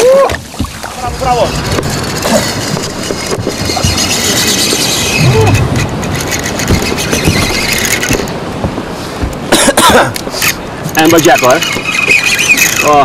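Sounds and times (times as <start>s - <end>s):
fishing reel drag squealing: 1.3s - 8.3s, 10.3s - 13.0s.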